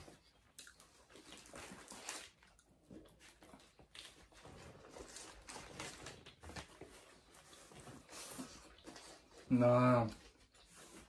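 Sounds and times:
chewing: 0.0s - 9.5s
paper wrapping rustling: 1.2s - 2.5s, 3.1s - 9.3s.

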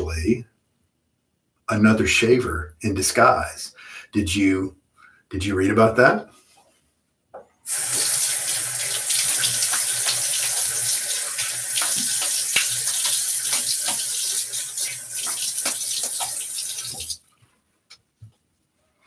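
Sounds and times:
faucet running: 7.6s - 17.2s
water splashing: 7.7s - 17.2s.

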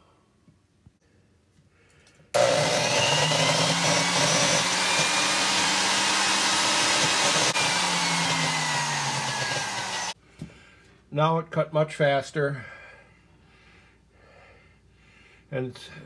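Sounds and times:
valve seat grinder whine: 2.4s - 10.2s.

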